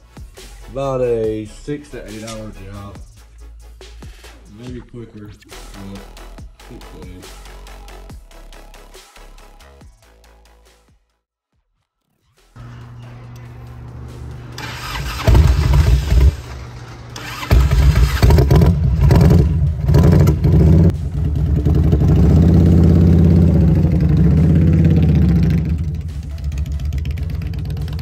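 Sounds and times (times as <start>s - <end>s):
motorcycle engine revving: 14.2s - 28.0s.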